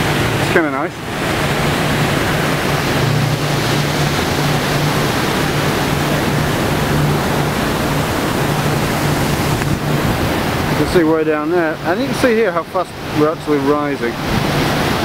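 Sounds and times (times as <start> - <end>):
low hum: 0.0 - 11.0
turbulent water rushing: 0.0 - 15.0.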